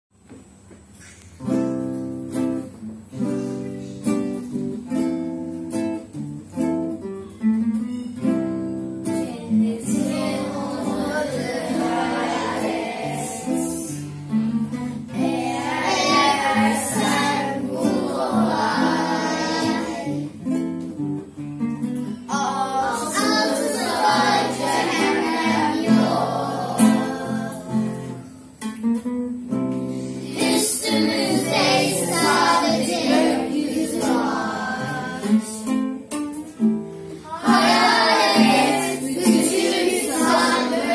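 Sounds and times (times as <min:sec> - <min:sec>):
acoustic guitar chords: 0:00.8 - 0:40.9
children singing: 0:09.2 - 0:14.1, 0:15.1 - 0:20.4, 0:22.3 - 0:28.2, 0:30.1 - 0:35.7, 0:37.2 - 0:40.9.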